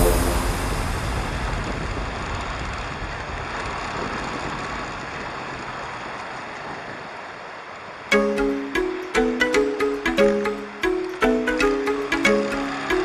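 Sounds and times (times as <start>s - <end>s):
motorcycle road noise: 0.0s - 8.1s
rushing wind: 0.0s - 8.1s
plucked-string music: 8.1s - 13.0s.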